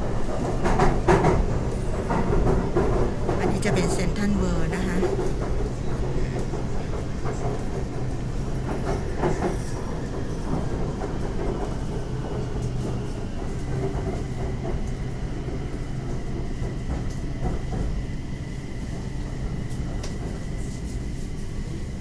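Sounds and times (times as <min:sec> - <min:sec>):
train wheels clacking: 0:00.0 - 0:21.9
train rumbling on track: 0:00.0 - 0:22.0.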